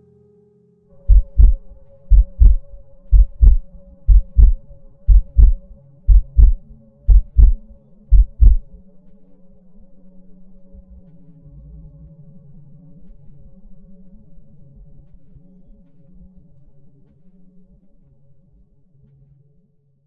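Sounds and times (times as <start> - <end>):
faint low drone: 0.0 - 19.7
heartbeat thumps: 1.1 - 8.7.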